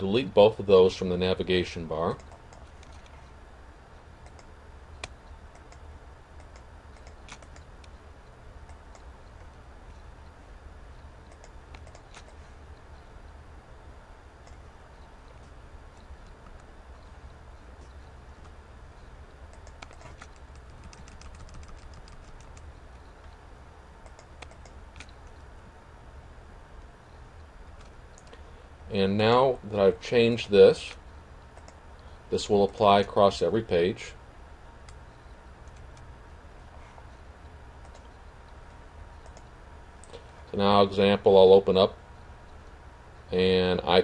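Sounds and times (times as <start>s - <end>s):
low steady hum: 0.0s - 44.0s
mouse and keyboard clicks: 6.4s - 8.0s, 11.3s - 12.4s, 19.5s - 22.7s, 24.0s - 25.4s.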